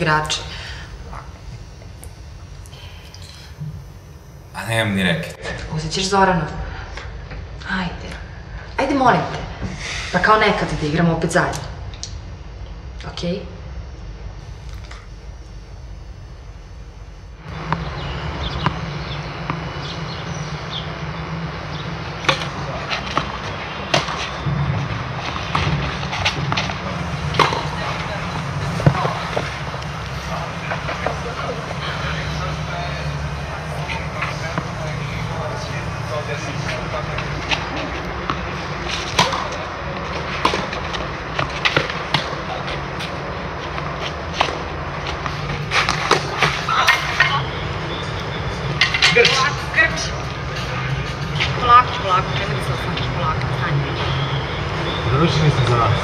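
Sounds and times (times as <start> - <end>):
low hum: 0.0 - 42.1
outdoor background noise: 0.0 - 56.0.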